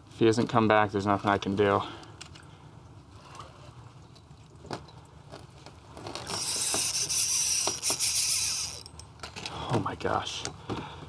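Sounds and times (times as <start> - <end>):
fishing reel whirring: 6.2 - 8.9.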